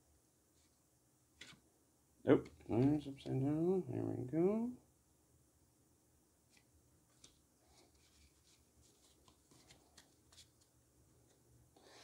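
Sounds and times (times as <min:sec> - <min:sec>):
trading cards clicking and rustling: 0:08.0 - 0:10.7.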